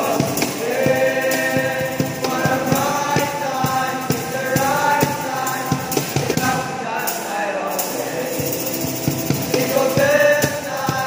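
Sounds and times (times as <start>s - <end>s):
men singing a carol: 0.0s - 11.0s
steady rhythmic beat: 0.0s - 11.0s
strummed acoustic guitar: 0.0s - 11.0s.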